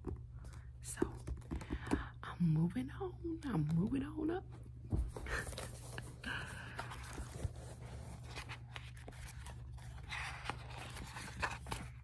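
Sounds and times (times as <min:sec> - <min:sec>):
book pages rustling: 0:04.9 - 0:12.0.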